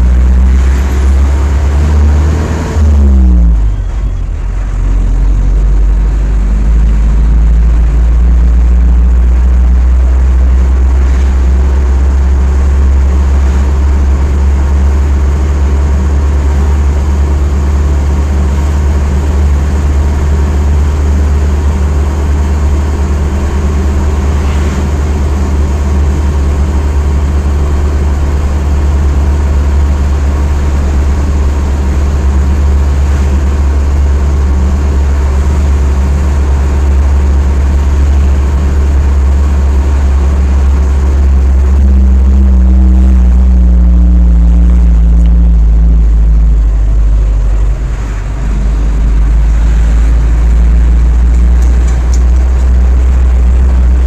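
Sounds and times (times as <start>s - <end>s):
engine and road drone in cabin: 0.0s - 54.0s.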